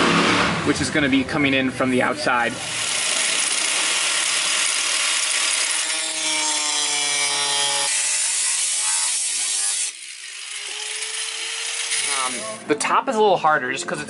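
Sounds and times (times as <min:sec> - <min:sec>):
angle grinder cutting metal: 0:02.6 - 0:12.6.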